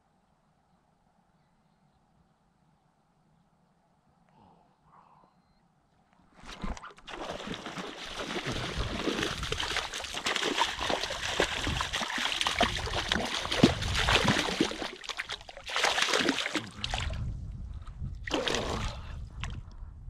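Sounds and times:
water splashing: 0:06.4 - 0:17.2, 0:18.2 - 0:19.1.

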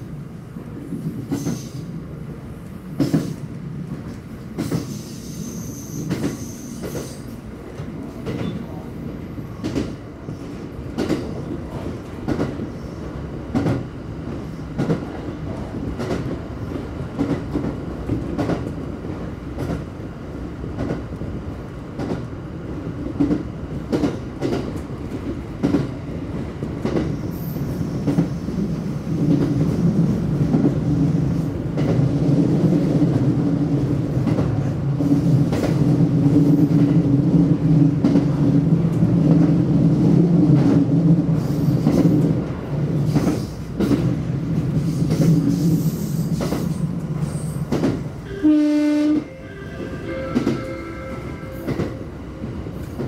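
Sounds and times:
train wheels clicking over rail joints: 0:03.0 - 0:03.4, 0:04.0 - 0:08.6, 0:40.5 - 0:48.1.

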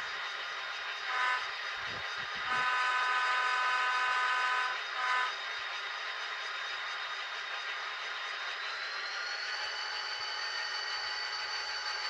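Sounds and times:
model locomotive air horn: 0:01.0 - 0:05.4.

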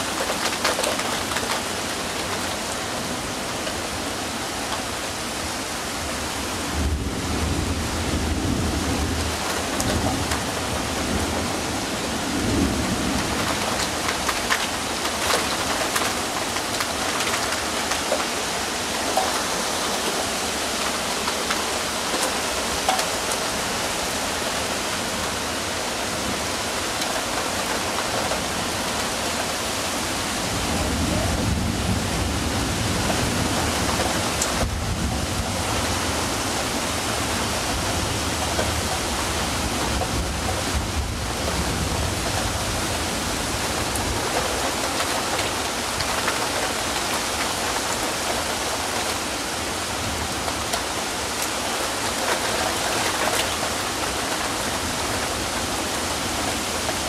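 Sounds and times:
heavy rain falling: 0:00.0 - 0:57.0
low thunder rumbling: 0:30.4 - 0:36.7.

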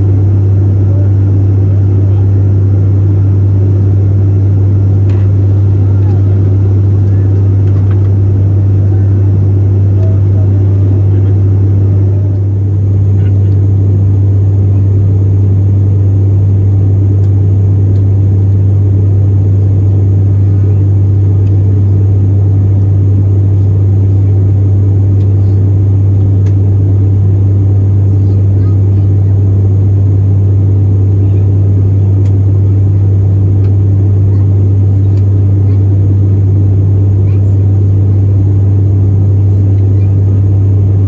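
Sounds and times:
engine and airflow rush: 0:00.0 - 0:41.0
propeller low hum: 0:00.0 - 0:41.0.

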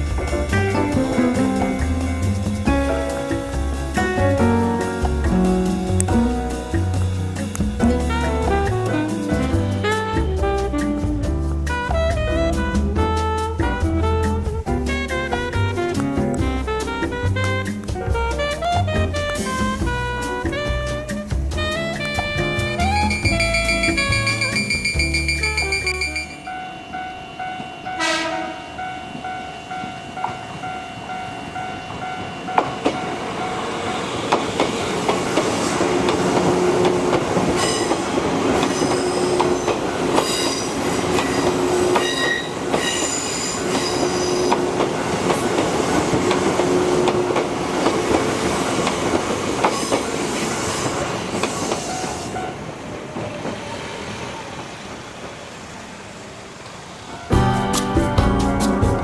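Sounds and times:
electric train rumbling: 0:00.0 - 0:11.5, 0:13.6 - 0:59.0
level crossing warning bell: 0:22.8 - 0:33.9
train wheels clicking on rail joints: 0:31.9 - 0:55.9.

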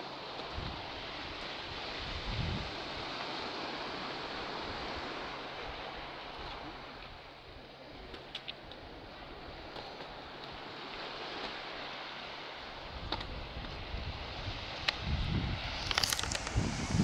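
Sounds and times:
sea surf washing on shore: 0:00.0 - 0:17.0
wind buffeting microphone: 0:01.7 - 0:03.0, 0:12.8 - 0:17.0.

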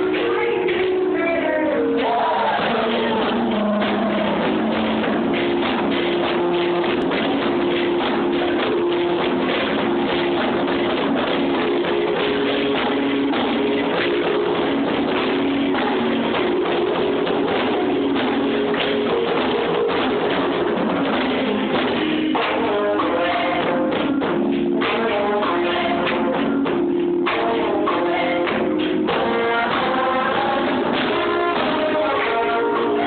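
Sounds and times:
choir singing chords: 0:21.2 - 0:33.0.

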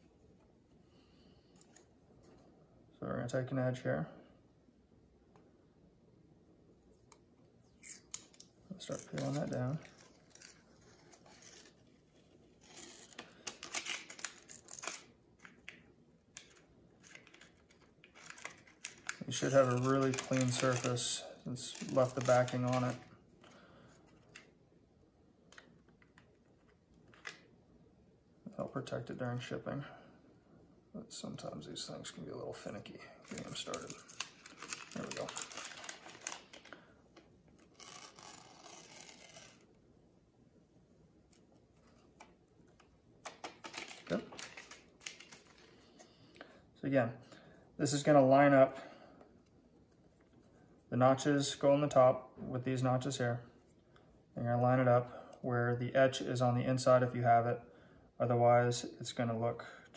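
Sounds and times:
protective film peeling off: 0:07.8 - 0:15.6, 0:16.4 - 0:23.0, 0:33.2 - 0:36.7, 0:37.6 - 0:39.8, 0:43.2 - 0:45.6.

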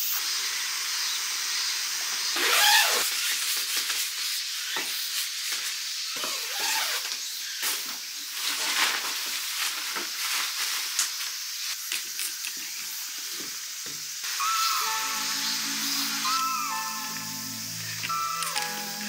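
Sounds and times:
steady hiss: 0:00.0 - 0:19.0
tent fabric rustling: 0:02.4 - 0:04.2, 0:06.2 - 0:07.1, 0:08.3 - 0:11.4.

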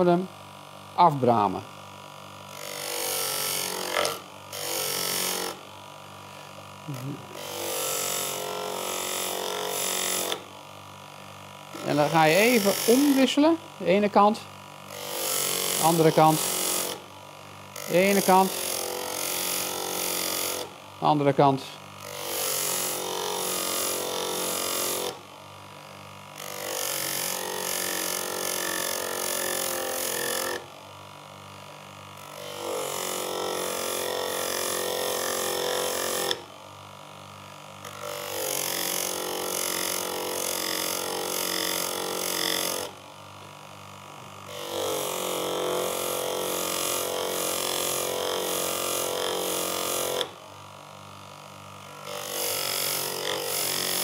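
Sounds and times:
motor hum: 0:00.0 - 0:28.6
chisel on honing wheel friction: 0:02.6 - 0:05.6, 0:11.8 - 0:13.3, 0:26.4 - 0:30.6, 0:32.4 - 0:36.4.

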